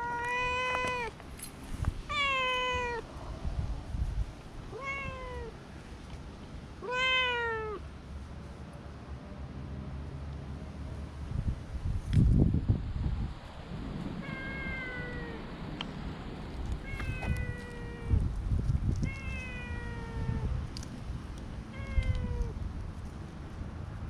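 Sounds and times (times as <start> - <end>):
cat meowing: 0.0 - 1.2, 2.1 - 3.1, 4.7 - 5.6, 6.8 - 7.8, 14.2 - 15.4, 16.8 - 18.2, 19.0 - 20.6, 21.7 - 22.6.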